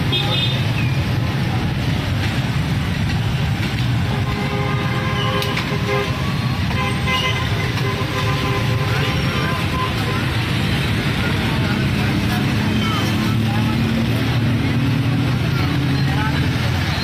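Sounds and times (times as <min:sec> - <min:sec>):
traffic engines rumbling: 0:00.0 - 0:17.0
vehicle horns honking: 0:04.0 - 0:11.0.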